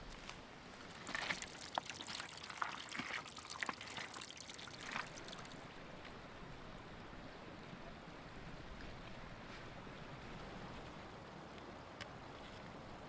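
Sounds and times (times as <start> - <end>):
patter of small splashes: 0.1 - 5.7
water trickling and splashing: 0.1 - 6.1.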